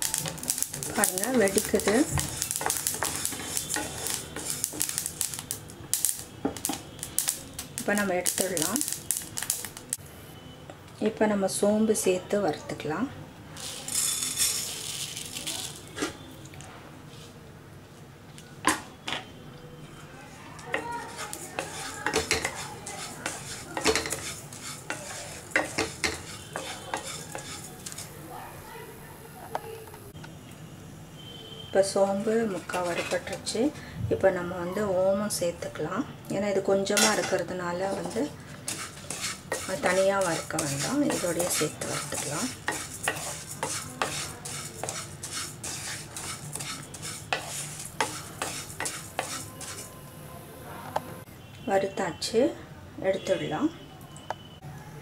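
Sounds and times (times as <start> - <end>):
seeds rustling in a pan: 0.0 - 10.0, 13.6 - 16.3, 20.5 - 28.2, 31.9 - 33.6, 36.9 - 49.9.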